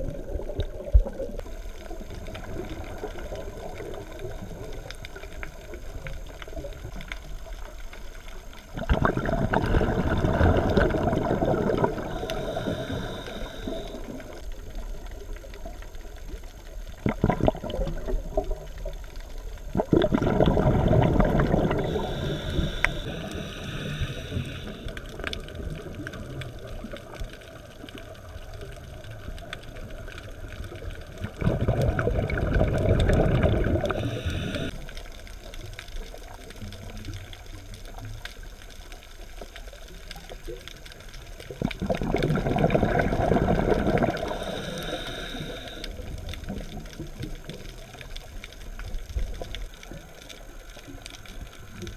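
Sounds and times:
exhaled bubbles underwater: 0.0 - 51.9
regulator hissing: 11.9 - 14.4, 21.7 - 24.9, 33.8 - 34.8, 44.2 - 46.1.

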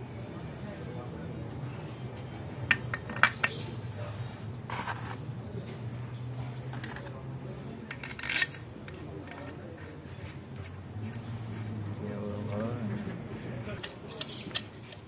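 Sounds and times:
metal engine parts clinking: 2.6 - 3.6, 6.7 - 9.5, 13.8 - 15.0.

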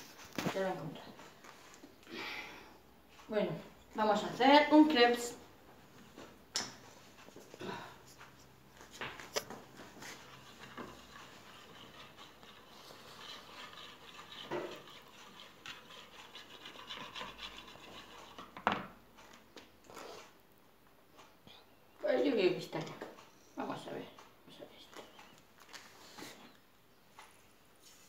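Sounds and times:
whisk scraping in a bowl: 9.8 - 18.6.

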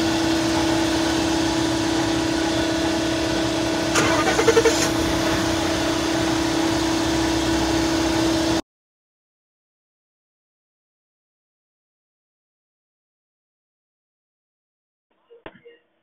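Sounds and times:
steady hum: 0.0 - 8.6
engine cranking rattle: 3.9 - 5.6.

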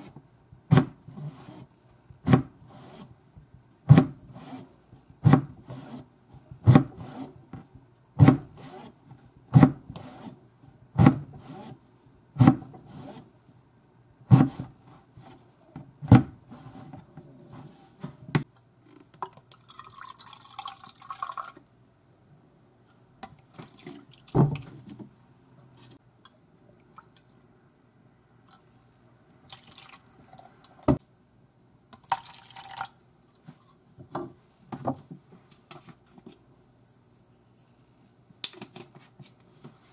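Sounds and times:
water pouring into bowl: 19.2 - 21.6, 29.5 - 30.2, 32.0 - 32.9.

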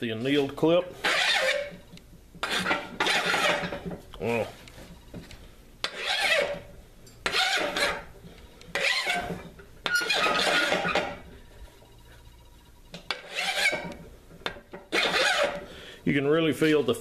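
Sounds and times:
hand file rasping on steel: 1.0 - 1.7, 2.4 - 3.7, 5.8 - 6.6, 7.2 - 8.0, 8.7 - 11.1, 13.1 - 14.0, 14.9 - 15.7.

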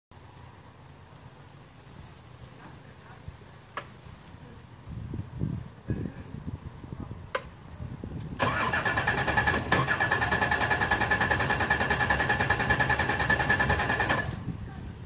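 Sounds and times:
engine starter cranking with whine: 8.4 - 14.6.

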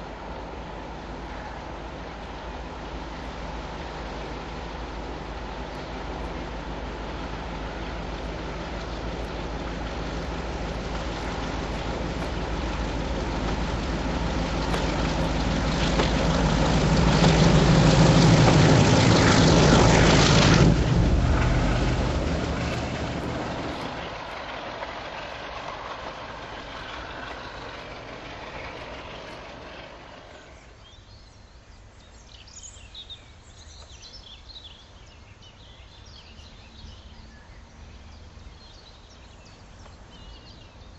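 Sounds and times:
diesel locomotive engine passing: 0.0 - 40.9
faint birds chirping: 25.2 - 40.9.

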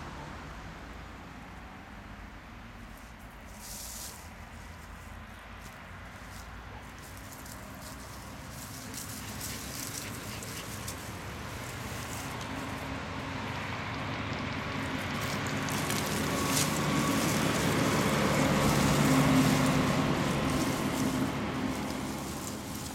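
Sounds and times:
truck engine driving past: 7.4 - 22.9.

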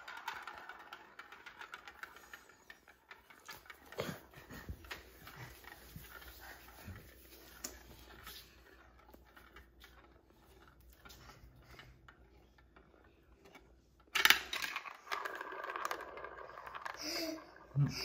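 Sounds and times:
marble rolling in plastic bowl: 0.0 - 18.0
marble dropping with loud clack: 14.1 - 17.2.

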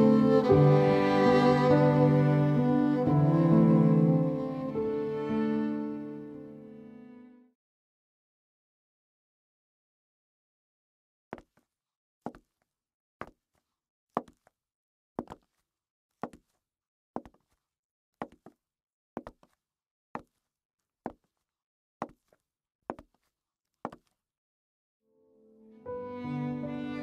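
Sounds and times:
footsteps on wooden floor: 12.3 - 12.6, 14.2 - 14.5, 15.2 - 15.6, 16.2 - 16.6, 17.2 - 17.6, 18.2 - 18.6, 19.2 - 19.6, 20.2 - 20.4, 21.1 - 21.4, 22.0 - 23.3, 23.9 - 24.1.

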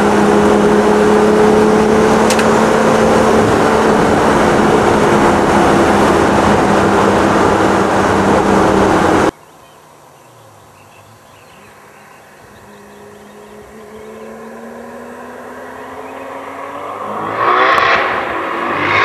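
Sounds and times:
distant car engine accelerating: 0.0 - 9.3, 11.0 - 19.0
car interior engine and road noise: 0.0 - 19.0.

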